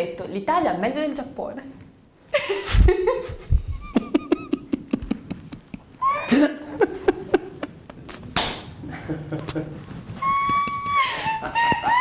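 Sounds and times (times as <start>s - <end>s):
people laughing uncontrollably: 2.3s - 8.2s, 8.8s - 12.0s.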